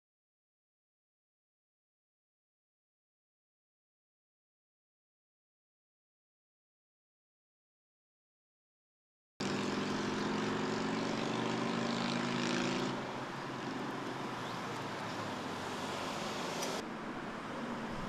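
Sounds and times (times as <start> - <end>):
engine drone: 9.4 - 18.0
outdoor noise rush: 9.4 - 18.0.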